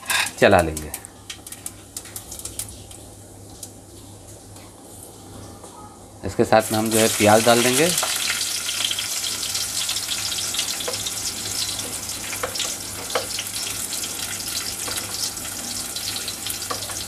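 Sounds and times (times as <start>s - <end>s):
onions sizzling in hot oil: 6.6s - 17.0s.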